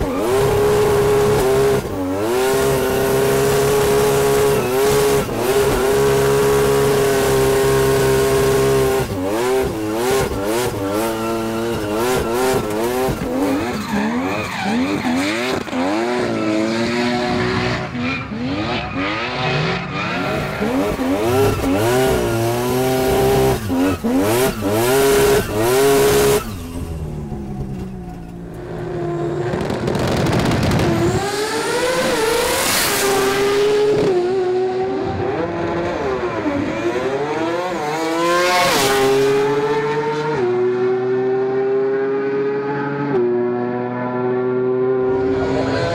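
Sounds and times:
rotary engine revving: 0.0 - 34.8.

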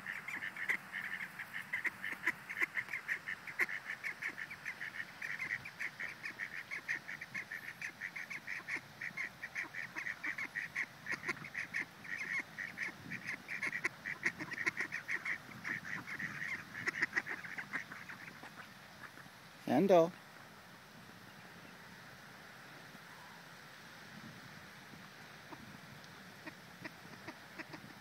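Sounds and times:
waterfowl flock calling: 0.0 - 19.3, 26.4 - 28.0.

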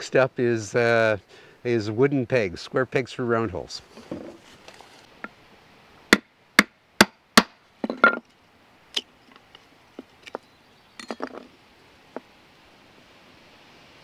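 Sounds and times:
wood splitting strikes: 6.1 - 8.2.

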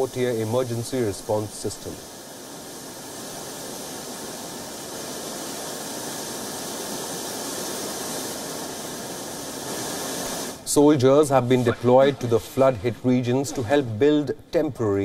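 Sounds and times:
rushing floodwater: 9.8 - 14.4.

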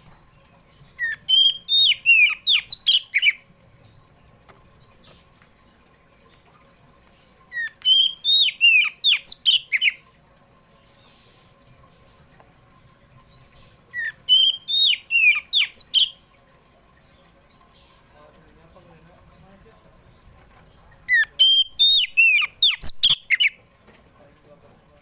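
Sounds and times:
bird whistling song: 0.8 - 3.4, 7.5 - 10.0, 13.3 - 16.2, 21.0 - 23.6.

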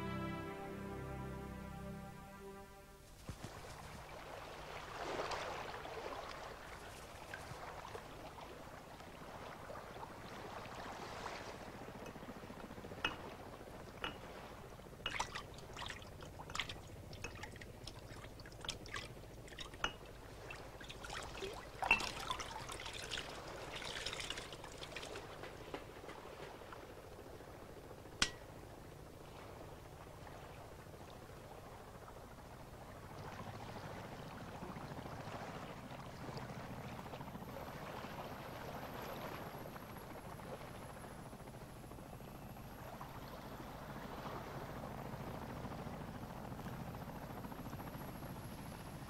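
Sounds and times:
faint trickling water: 3.8 - 44.1
water drips plinking: 13.0 - 14.4, 15.0 - 23.2.

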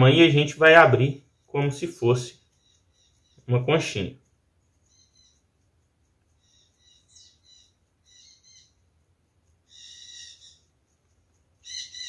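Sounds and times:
bird calling: 6.4 - 8.8, 9.7 - 10.7, 11.6 - 12.0.

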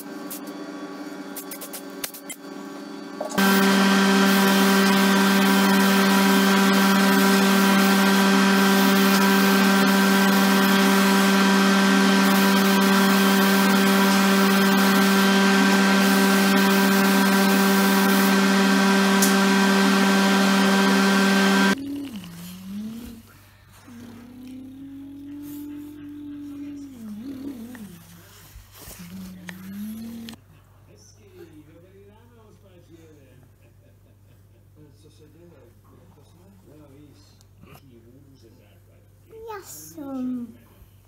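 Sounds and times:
loud motor whine: 2.4 - 21.8.

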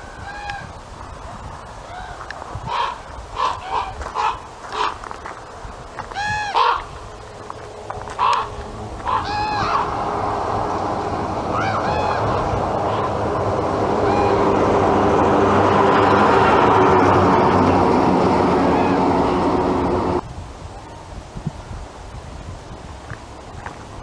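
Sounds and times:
raven calling: 0.0 - 0.8, 1.8 - 5.1, 6.0 - 7.0, 7.9 - 20.2
steady rushing noise: 0.0 - 24.0.

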